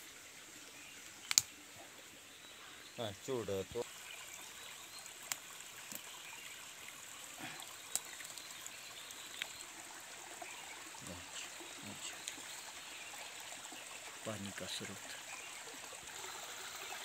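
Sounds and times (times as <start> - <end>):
stream trickling over rocks: 0.0 - 17.0
sharp clicks: 1.2 - 1.5.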